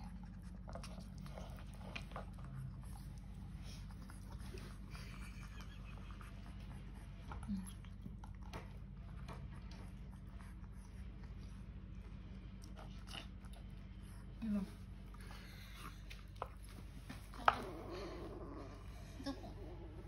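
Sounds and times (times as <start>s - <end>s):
kitten crunching dry kibble: 0.0s - 4.9s
steady low hum: 0.0s - 20.0s.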